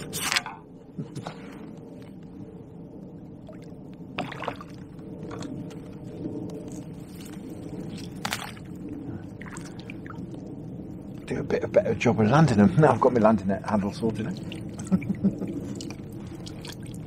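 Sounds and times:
steady low rumble: 0.0s - 17.0s
water sloshing and splashing: 3.4s - 10.4s, 14.1s - 17.0s.

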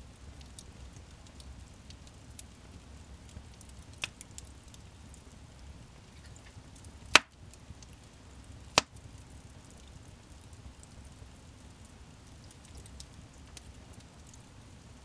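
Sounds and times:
low rumble of burning: 0.0s - 15.0s
wood fire crackling: 0.0s - 15.0s
sharp pops of burning wood: 3.3s - 4.9s, 6.2s - 9.1s.

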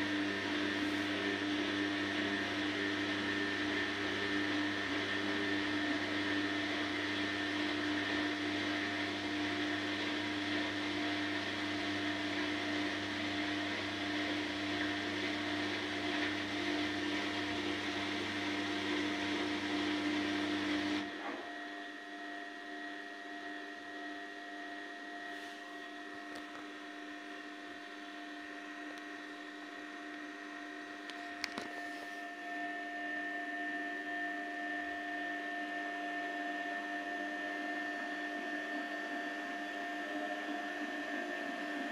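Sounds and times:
washing machine motor whine: 0.0s - 41.9s
click: 31.1s - 31.7s.

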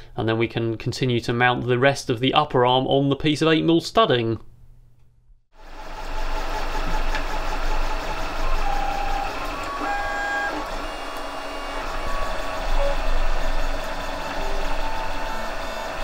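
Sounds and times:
mechanical whir: 5.6s - 16.0s
stepper motors whining: 5.6s - 16.0s.

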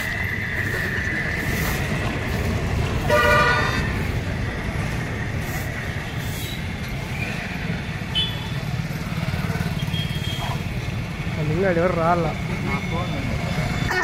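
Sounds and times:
road traffic rumble: 0.0s - 14.0s
vehicle horn honk: 3.1s - 3.8s.

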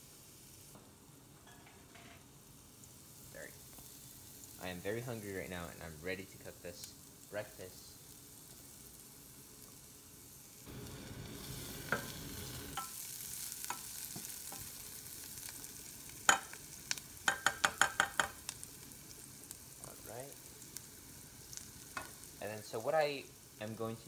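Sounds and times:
onion sizzling in hot oil: 0.0s - 24.0s
utensil tapping against pan: 17.3s - 18.4s.

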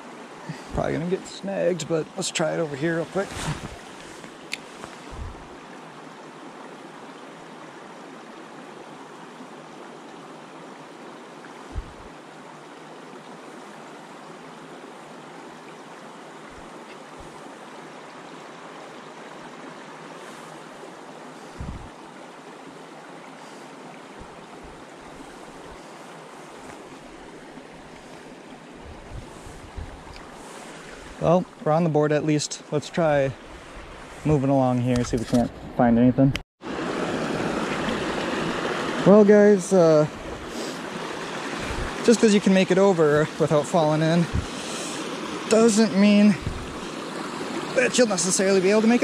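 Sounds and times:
creek water rushing: 0.0s - 35.4s, 36.6s - 49.0s
low thumps: 5.1s - 5.5s, 11.7s - 12.1s, 28.9s - 30.2s, 46.4s - 46.8s.

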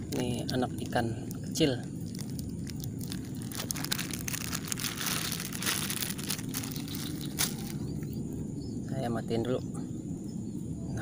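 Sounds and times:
plastic bag crinkling: 0.6s - 7.9s.

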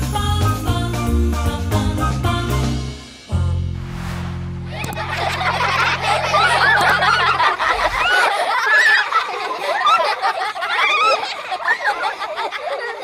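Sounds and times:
music track low notes: 3.2s - 8.1s
children laughing: 4.6s - 13.0s.

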